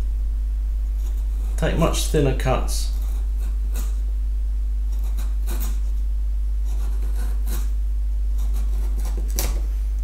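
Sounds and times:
steady low hum: 0.0s - 10.0s
chisel scraping wood: 4.9s - 5.9s, 6.6s - 7.8s, 8.4s - 9.5s.

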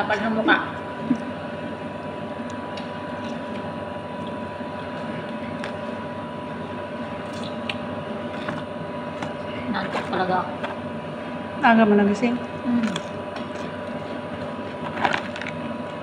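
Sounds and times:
kitchen appliance humming: 0.0s - 16.0s
squishy eating sounds: 2.6s - 6.0s, 7.2s - 10.2s, 12.6s - 16.0s.

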